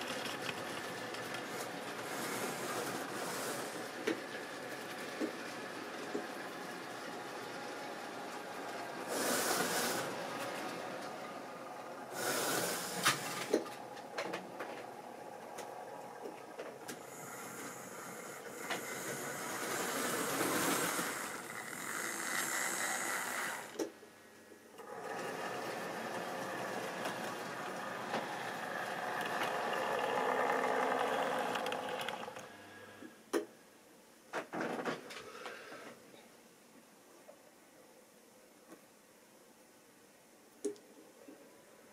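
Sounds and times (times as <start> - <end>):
model train wheels rattling: 0.0 - 11.3, 12.1 - 23.8, 24.8 - 32.5
small electric motor whirring: 16.9 - 23.8, 24.8 - 32.5.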